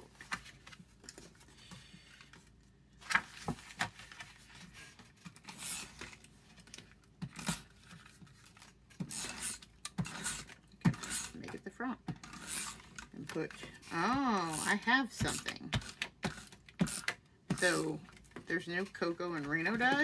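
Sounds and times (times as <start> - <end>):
paper rustling: 0.0 - 9.5.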